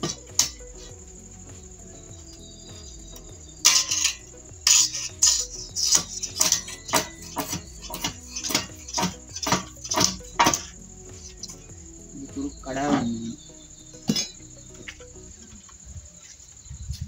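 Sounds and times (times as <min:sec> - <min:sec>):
faint background music: 0:00.0 - 0:17.0
crowbar knocking inside bamboo: 0:03.6 - 0:10.8.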